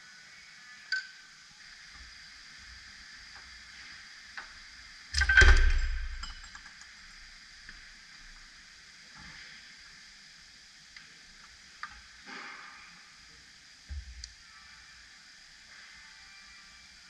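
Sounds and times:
metallic clank: 0:05.2 - 0:06.6.

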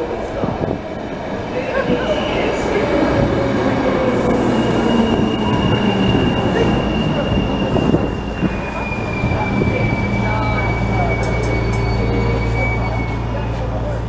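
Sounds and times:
electric train rumble and hum: 0:00.0 - 0:14.0
high steady squeal: 0:04.1 - 0:14.0.

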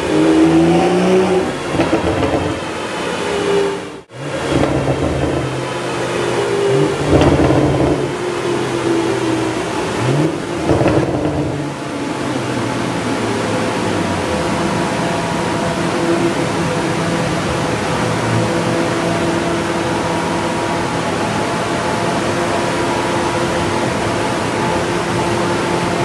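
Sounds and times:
car engine revving: 0:00.0 - 0:26.0
sharp exhaust cracks: 0:04.3 - 0:05.9, 0:06.7 - 0:08.3.

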